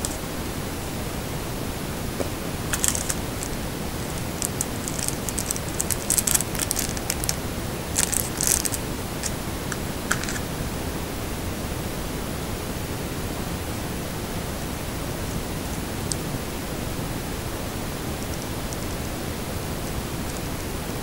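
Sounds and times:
steady hiss: 0.0s - 21.0s
plastic bag crinkling: 2.6s - 9.4s, 10.0s - 10.5s.

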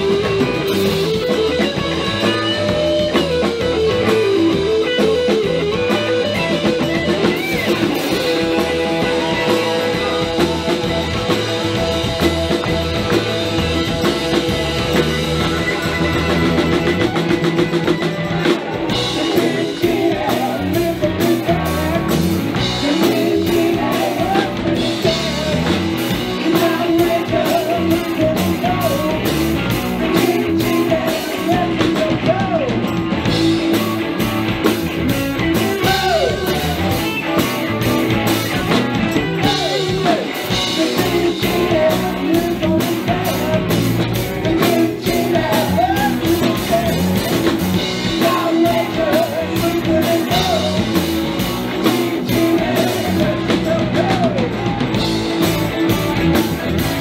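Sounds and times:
bass guitar: 0.0s - 57.0s
drum kit beat: 0.0s - 57.0s
electric guitars: 0.0s - 57.0s
person singing: 7.7s - 15.7s, 18.2s - 32.9s, 35.6s - 37.8s, 38.7s - 56.5s.

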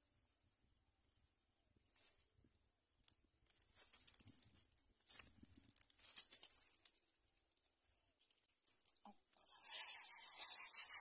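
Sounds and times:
dry grass crackling and rustling: 1.8s - 2.4s, 3.0s - 10.7s.

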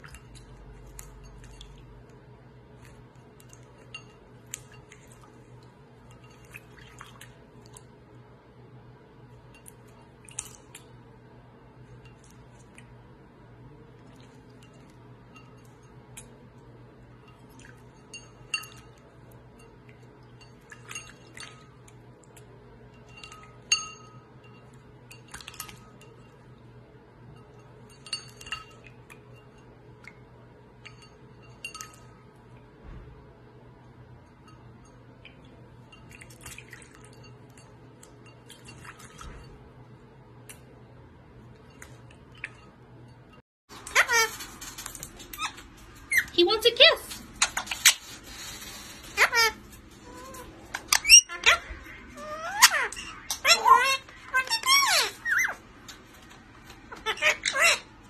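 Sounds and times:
clinks on ceramic bowl: 17.2s - 26.5s, 27.4s - 30.2s, 30.8s - 32.3s.

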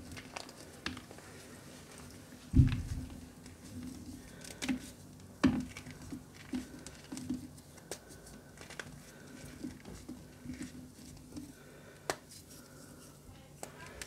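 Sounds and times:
chalk crunching and crumbling: 0.0s - 14.0s
dull thump: 2.5s - 3.2s.

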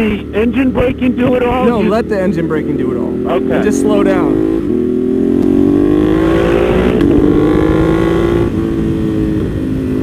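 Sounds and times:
motorcycles accelerating hard: 0.0s - 10.0s
wind rush: 5.8s - 10.0s.

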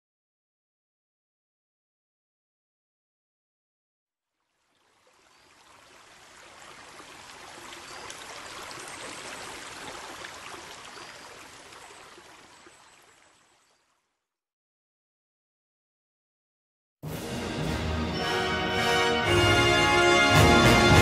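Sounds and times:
rushing running water: 4.5s - 14.0s.

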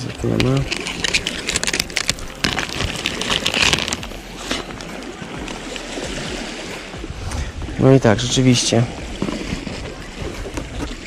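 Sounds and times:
surf: 0.0s - 11.0s
wind: 0.0s - 11.0s
plastic wrapping crinkling: 0.2s - 4.3s.

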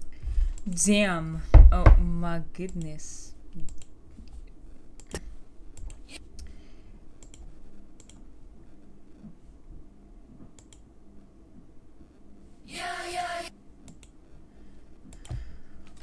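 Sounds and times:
computer clicks: 3.6s - 4.0s, 5.0s - 6.5s, 7.2s - 8.3s, 10.6s - 10.9s, 13.9s - 14.2s, 15.1s - 16.0s.

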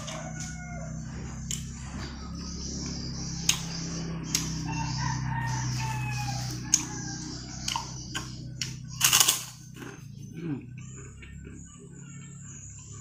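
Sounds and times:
rooster crowing: 0.0s - 2.6s, 4.3s - 8.1s
steady low hum: 0.0s - 13.0s.

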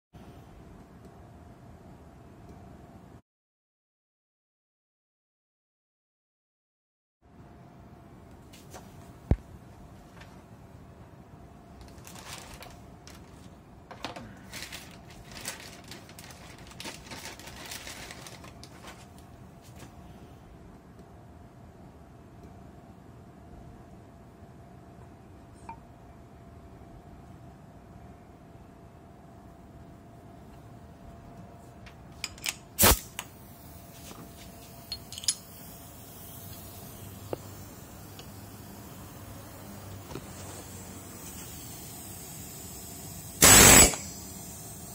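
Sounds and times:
plastic bag crinkling: 11.8s - 19.2s
compressed air blast: 32.8s - 33.8s, 35.5s - 44.9s
metallic clicks and clinks: 34.9s - 35.6s.

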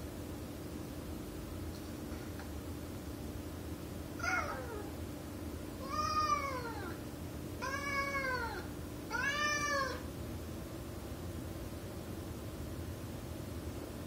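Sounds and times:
cat meowing: 4.2s - 5.0s, 5.8s - 7.0s, 7.6s - 10.1s.

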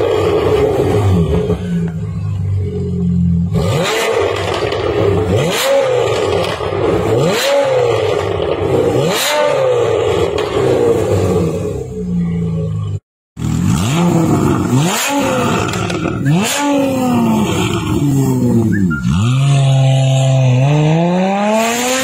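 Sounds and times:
car engine idling: 0.0s - 3.5s, 10.0s - 13.0s
car engine revving with bark: 3.4s - 22.0s.

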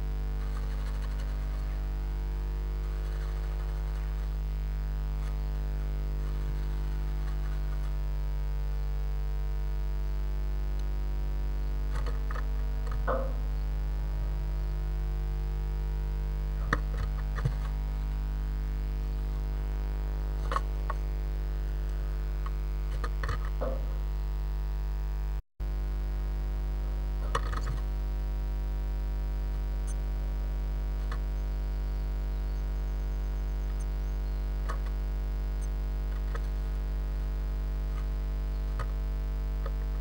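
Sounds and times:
electrical mains hum: 0.0s - 40.0s
faint scratches and taps: 5.1s - 8.0s, 16.6s - 17.8s
sharp clicks: 31.0s - 31.4s, 33.6s - 35.0s.

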